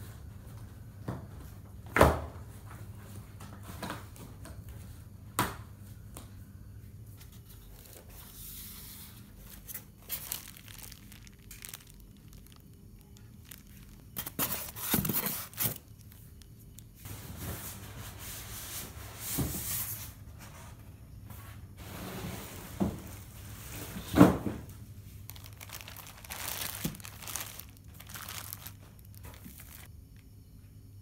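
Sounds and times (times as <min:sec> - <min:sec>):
plastic bags crinkling: 0:09.4 - 0:17.0, 0:25.1 - 0:29.9.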